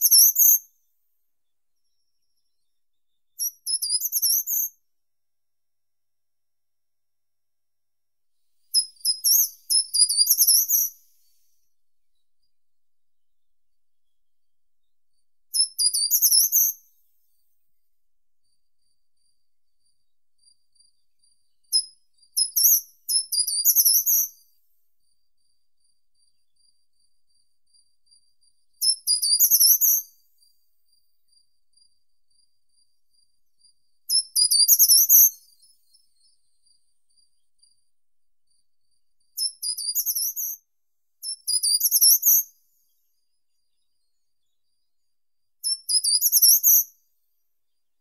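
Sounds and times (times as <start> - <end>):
bird singing high phrases: 1.8 - 4.7, 8.7 - 11.6, 15.5 - 16.8, 21.7 - 24.4, 34.1 - 36.8, 39.4 - 40.6, 41.2 - 42.5, 45.6 - 46.8.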